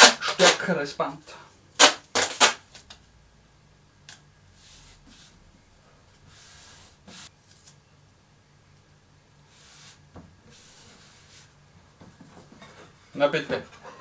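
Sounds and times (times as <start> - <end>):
tape ripping off roll: 0.0 - 0.7, 1.8 - 2.9
hands rubbing tape down: 1.8 - 2.9.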